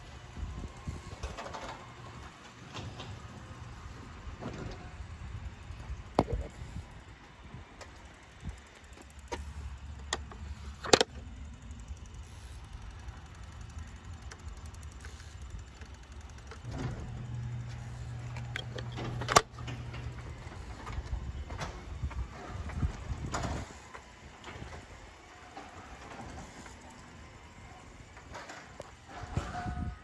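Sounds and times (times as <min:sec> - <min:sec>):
garage door motor hum: 0:00.0 - 0:30.0
sharp clicks and knocks: 0:08.7 - 0:11.3, 0:14.2 - 0:23.6.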